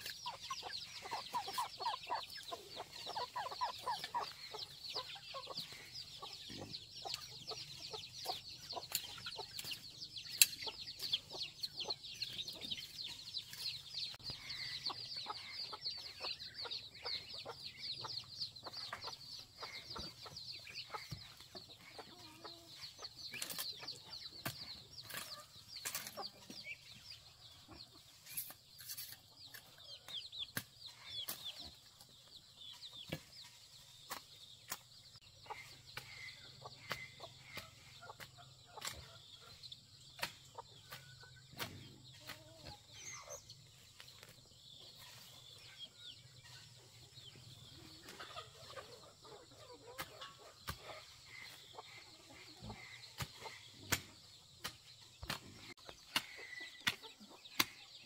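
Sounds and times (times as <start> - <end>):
chickens clucking: 0.0 - 58.0
chicks peeping: 0.0 - 58.0
sharp knocks and scrapes: 23.3 - 26.7, 28.1 - 29.9, 36.8 - 39.2, 40.1 - 42.8, 52.6 - 57.8.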